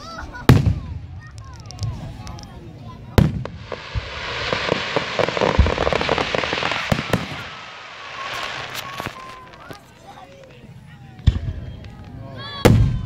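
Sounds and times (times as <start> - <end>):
fireworks booms: 0.4 - 10.5
fireworks crackling: 0.5 - 12.8.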